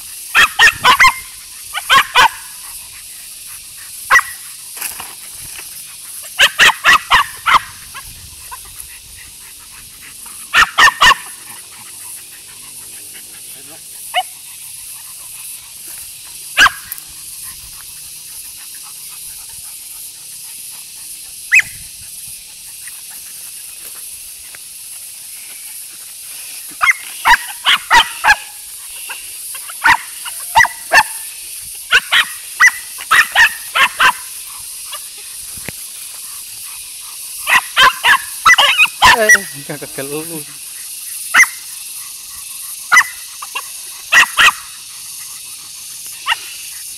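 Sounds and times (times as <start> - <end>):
dog barking: 0.3 - 2.8, 4.1 - 4.4, 6.3 - 8.6, 10.4 - 14.3, 16.6 - 16.9, 26.8 - 31.3, 31.9 - 34.3, 37.4 - 39.7, 41.3 - 41.6, 42.9 - 44.8, 46.2 - 46.7.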